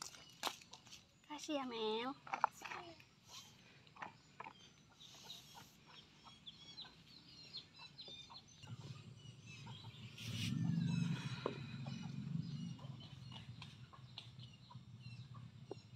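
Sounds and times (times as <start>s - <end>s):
birds chirping and clucking: 2.2s - 15.9s
low rumbling noise: 8.7s - 15.7s.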